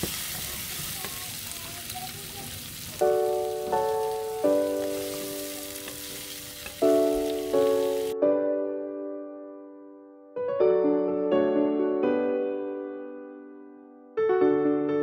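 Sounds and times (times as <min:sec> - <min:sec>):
food sizzling in a pot: 0:00.0 - 0:08.2
soft piano melody: 0:03.0 - 0:15.0.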